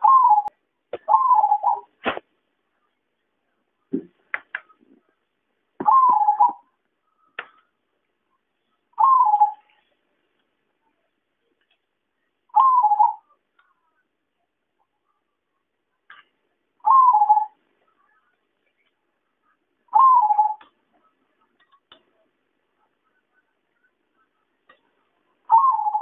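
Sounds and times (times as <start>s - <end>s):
dove cooing: 0.0s - 0.5s, 1.1s - 1.9s, 5.8s - 6.7s, 9.0s - 9.7s, 12.5s - 13.3s, 16.8s - 17.6s, 19.9s - 20.7s, 25.5s - 26.0s.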